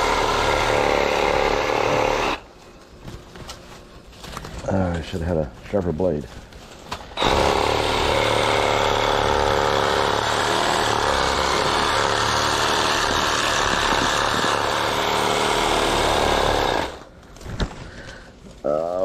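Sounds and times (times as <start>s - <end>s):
power cutting tool cutting brush: 0.0s - 2.4s, 7.2s - 17.0s.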